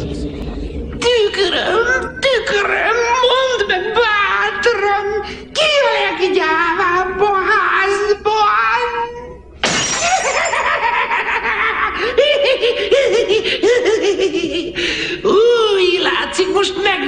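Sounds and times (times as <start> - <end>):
breaking glass rattling: 9.6 - 10.8
mirror shattering: 9.6 - 10.8
high cackling laughter: 9.9 - 14.9.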